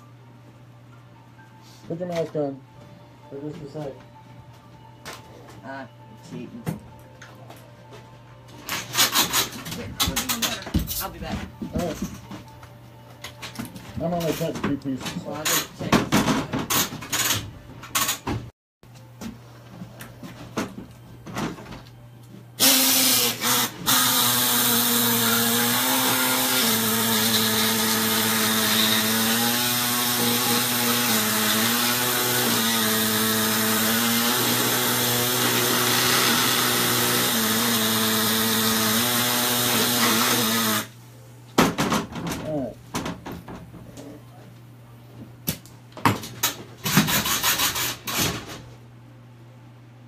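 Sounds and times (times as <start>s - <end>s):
handheld power tool cutting: 22.6s - 40.9s, 46.8s - 48.3s.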